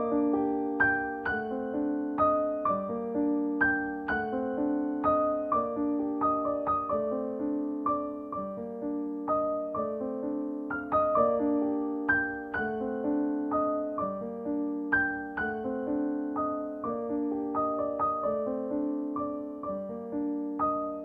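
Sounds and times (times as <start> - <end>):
gentle piano melody: 0.0 - 21.0.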